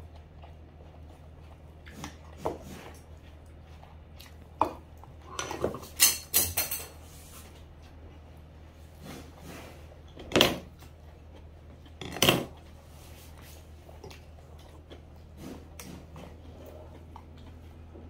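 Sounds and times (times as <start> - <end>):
eating sounds: 0.0 - 6.0, 7.5 - 18.0
steady low hum: 0.0 - 18.0
steel dishes handling: 5.9 - 7.0.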